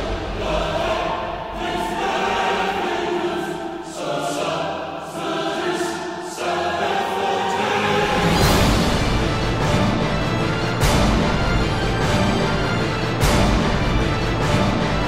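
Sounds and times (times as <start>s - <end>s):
choir singing held chords: 0.0s - 15.0s.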